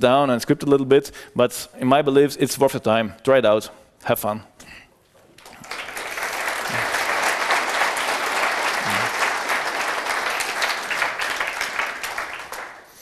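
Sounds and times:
audience applauding: 0:05.3 - 0:13.0.

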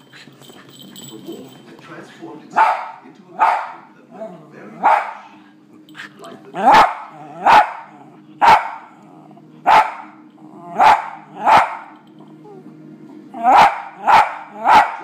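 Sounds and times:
dog barking: 0:02.6 - 0:03.9, 0:04.8 - 0:05.3, 0:06.6 - 0:08.9, 0:09.7 - 0:10.2, 0:10.8 - 0:12.0, 0:13.4 - 0:15.0.

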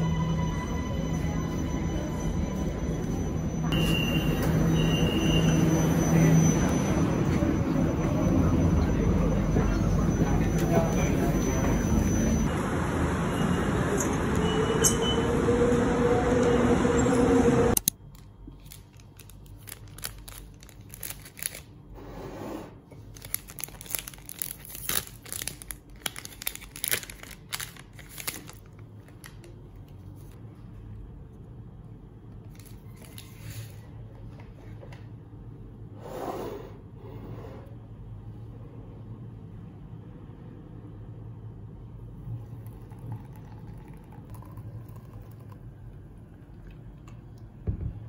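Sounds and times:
rail station noise: 0:00.0 - 0:17.9, 0:31.5 - 0:45.5
paper packet crinkling and tearing: 0:18.5 - 0:21.7, 0:23.1 - 0:29.5.

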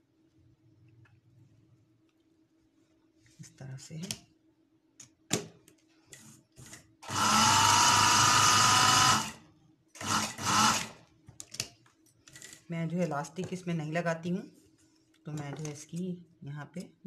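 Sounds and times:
sewing machine motor running: 0:07.0 - 0:09.4, 0:10.0 - 0:11.0.

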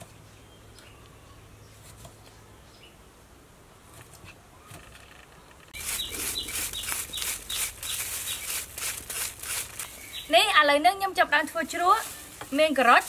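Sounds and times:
gloved hands scrunching vegetables: 0:05.8 - 0:10.5.

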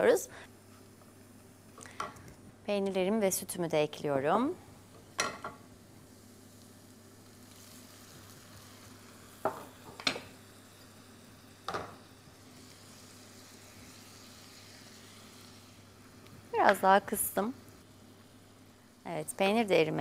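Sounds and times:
food sizzling in a frying pan: 0:04.1 - 0:20.0.

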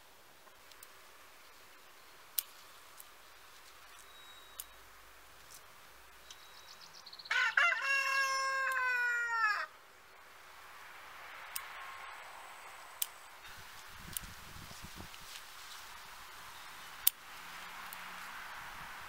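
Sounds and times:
scissors snipping stems: 0:02.3 - 0:04.8, 0:13.0 - 0:14.3
rooster crowing: 0:07.3 - 0:09.8.

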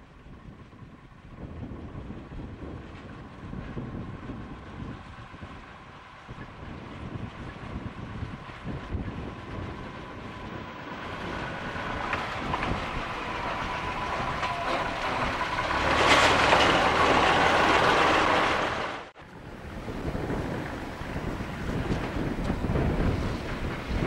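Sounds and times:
diesel locomotive engine: 0:00.0 - 0:24.0
train wheels on rails: 0:08.3 - 0:24.0.

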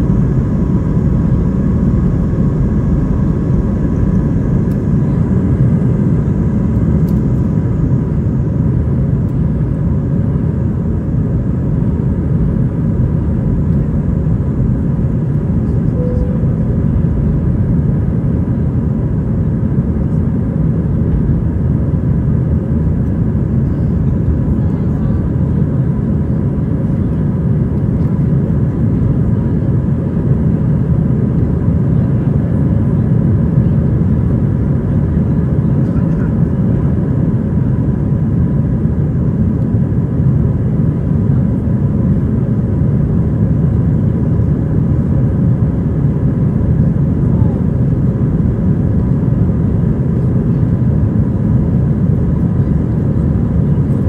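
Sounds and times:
faint steady whine: 0:00.0 - 0:28.2
airplane cabin engine rumble: 0:00.0 - 0:54.0.

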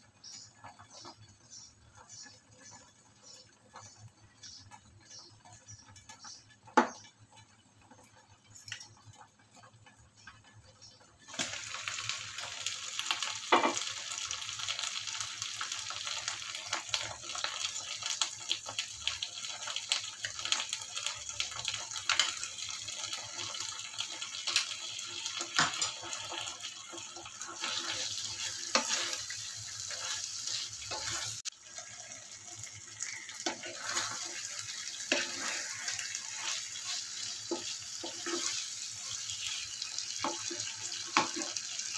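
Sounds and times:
food sizzling in a frying pan: 0:00.0 - 0:41.9
spoon knocking against pan: 0:06.7 - 0:07.1
spoon stirring: 0:27.3 - 0:31.5, 0:33.4 - 0:38.8.

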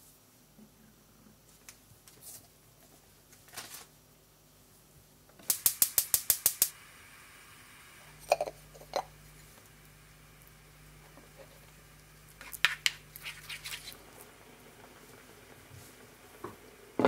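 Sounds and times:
gas burner hissing: 0:05.3 - 0:17.0
gas igniter clicking: 0:05.4 - 0:06.7.

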